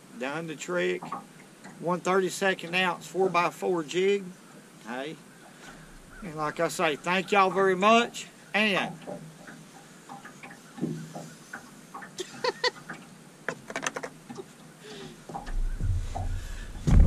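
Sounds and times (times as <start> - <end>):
low rumble: 15.4 - 17.0.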